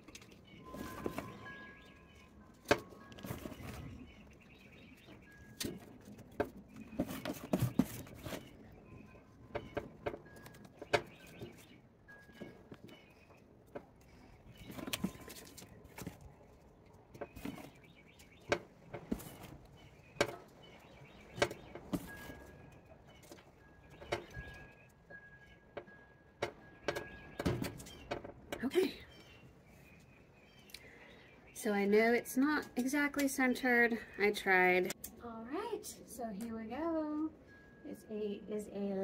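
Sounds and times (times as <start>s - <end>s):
faint birds chirping: 0.0s - 39.0s.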